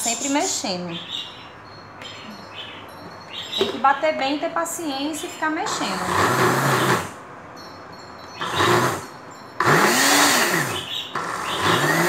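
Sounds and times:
blender motor pulsing: 5.6s - 7.2s, 8.4s - 12.0s.

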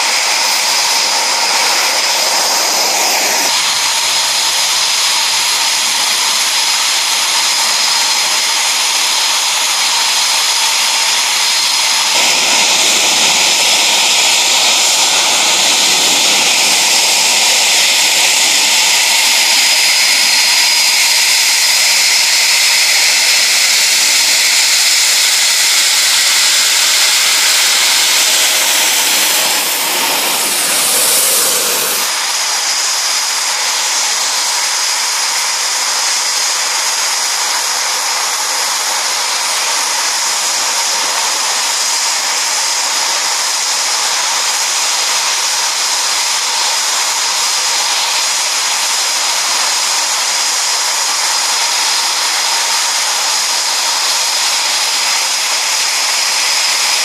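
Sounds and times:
jet engines whining: 0.0s - 44.4s.

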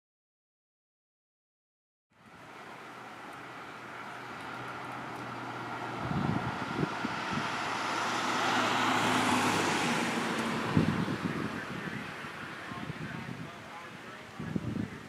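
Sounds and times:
vehicle passing by: 2.2s - 14.0s
wind buffeting microphone: 4.4s - 15.0s.

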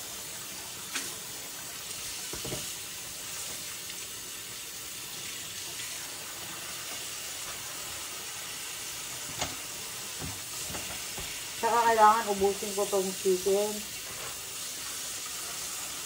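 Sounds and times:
tap running into a sink: 2.2s - 2.8s, 9.2s - 11.4s.

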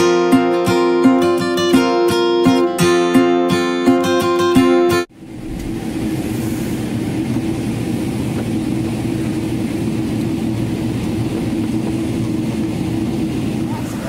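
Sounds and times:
airliner engines and airflow drone: 5.1s - 14.0s
steady low hum: 5.1s - 14.0s.

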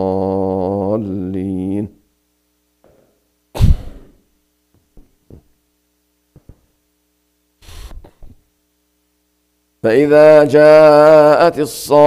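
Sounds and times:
faint microphone hum: 0.0s - 12.0s
short loud noisy sound: 3.6s - 4.2s.

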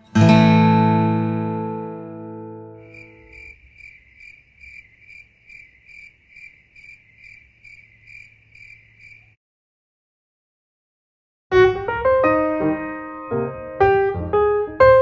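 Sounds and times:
cricket chirping: 2.8s - 9.4s.

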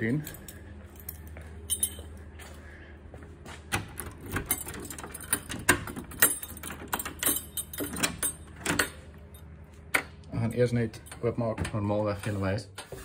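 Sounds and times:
keys and door clicking: 0.0s - 2.2s, 3.7s - 10.0s
low steady hum: 0.0s - 13.0s.

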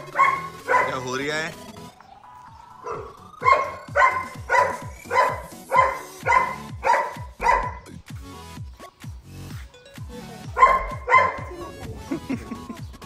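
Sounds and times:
dog barking: 0.0s - 1.2s, 2.8s - 7.9s, 10.5s - 11.7s
music with steady beat: 1.6s - 13.0s.

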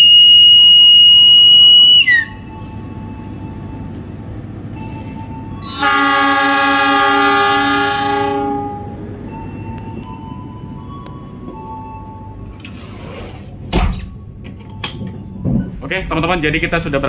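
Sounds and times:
locomotive horn blast: 0.0s - 2.6s, 5.2s - 9.4s
low rumble of train: 0.0s - 17.0s.

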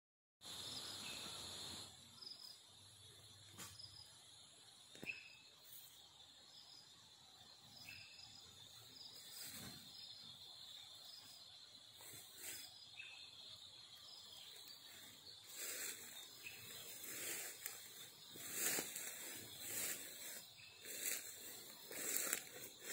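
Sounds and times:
high insect buzz: 0.4s - 22.9s
footsteps through grass: 12.0s - 13.1s, 14.5s - 22.9s.

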